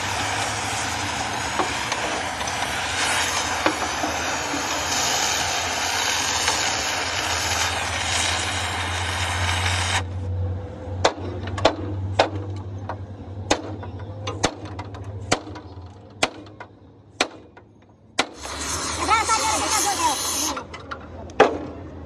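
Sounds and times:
gas torch flame roaring: 0.0 - 12.6, 18.2 - 20.7.

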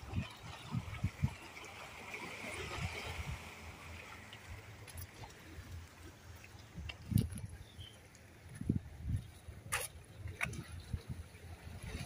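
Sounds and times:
wind buffeting microphone: 0.0 - 1.4, 6.7 - 7.9, 8.5 - 12.0.

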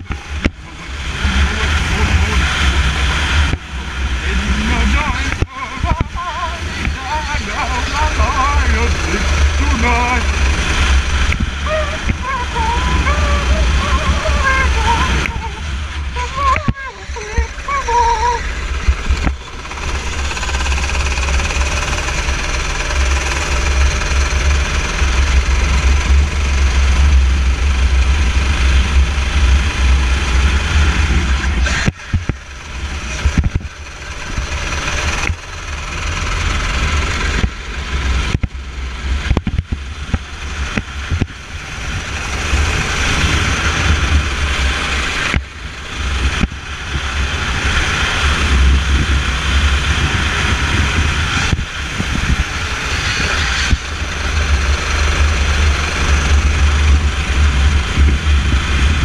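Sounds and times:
racing kart engine: 0.0 - 59.0
wind buffeting microphone: 39.2 - 59.0.

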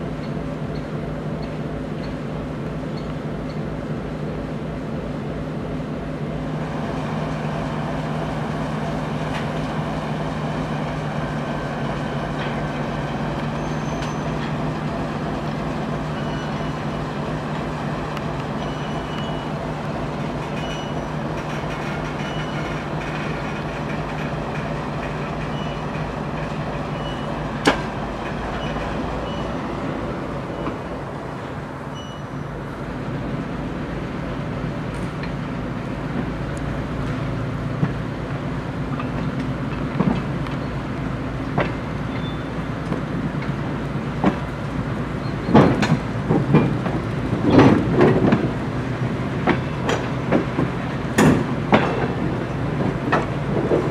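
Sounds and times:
diesel locomotive engine running: 0.0 - 53.9
wheels and couplings clanking: 11.7 - 32.8, 34.8 - 53.9.

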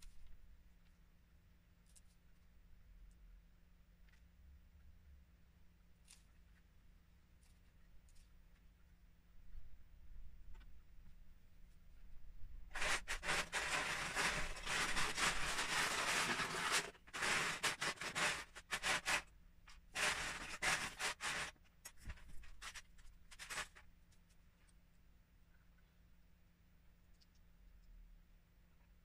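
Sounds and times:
plastic bricks clattering: 12.8 - 19.2, 19.9 - 21.5.

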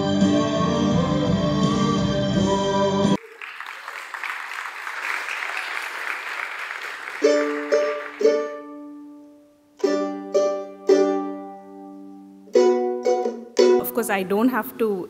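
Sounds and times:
audience applause: 3.2 - 8.5
plucked string chords: 7.3 - 14.7.

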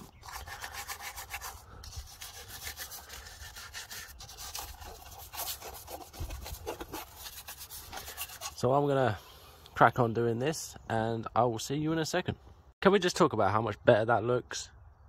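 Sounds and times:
bristle brush scrubbing: 0.0 - 8.6.

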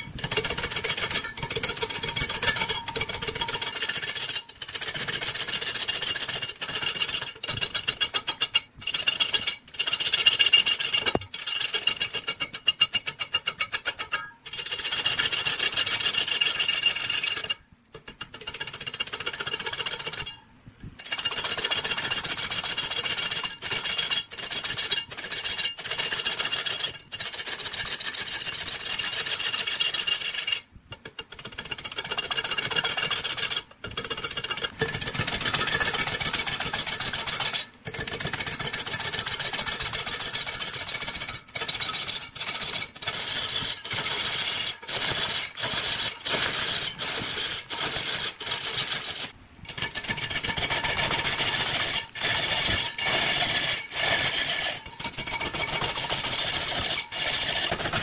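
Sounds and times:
turning tool cutting wood on lathe: 40.6 - 58.0.

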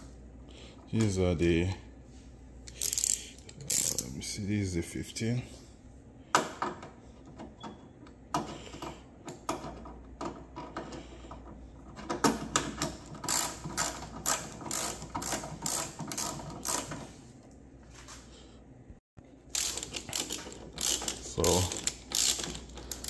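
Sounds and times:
hand ratchet clicking: 2.7 - 4.1, 12.3 - 17.0, 19.6 - 23.0.

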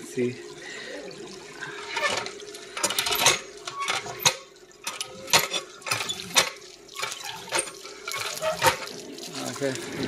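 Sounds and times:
faint steady hum: 0.0 - 3.8
water pump clanking: 1.4 - 10.0.

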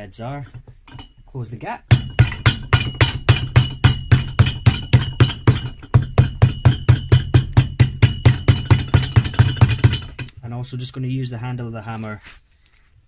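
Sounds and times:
hammer striking leather sole: 1.9 - 10.3.

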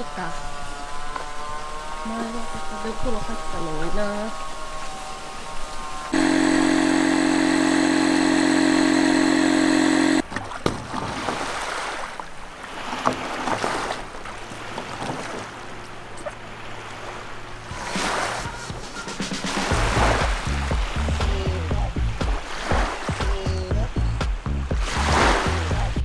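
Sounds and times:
loud droning tone: 6.0 - 10.2
shallow water splashing: 6.4 - 21.4, 22.2 - 23.6.

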